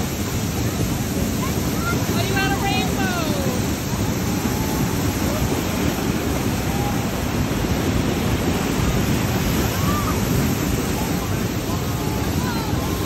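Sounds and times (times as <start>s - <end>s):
waterfall pounding: 0.0s - 13.0s.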